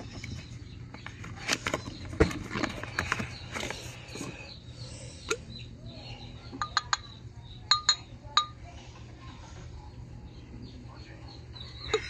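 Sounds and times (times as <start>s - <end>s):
glass jar clicks and knocks: 7.7s - 8.6s.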